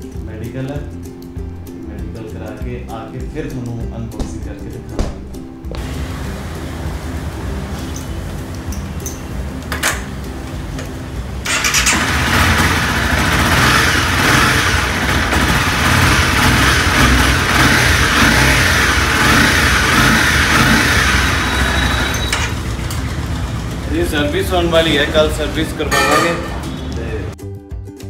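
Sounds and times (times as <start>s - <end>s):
motorcycle engine revving: 5.8s - 27.4s.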